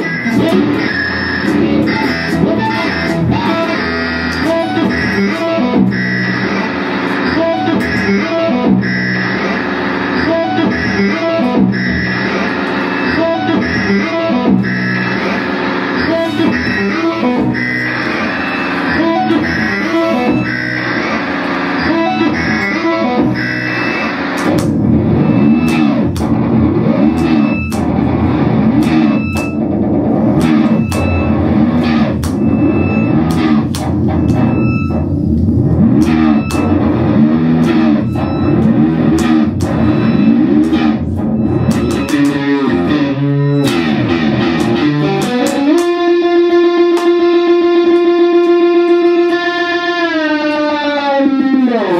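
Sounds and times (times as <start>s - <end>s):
electric guitar with effects: 0.0s - 51.9s
sharp clicks: 23.8s - 29.8s, 30.4s - 46.2s.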